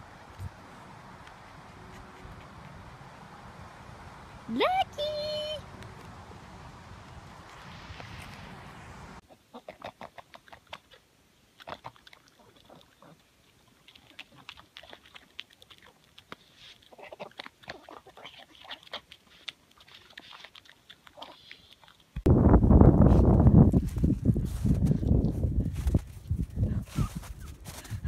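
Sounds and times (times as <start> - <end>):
dog chewing with wet smacks: 13.8 - 22.2.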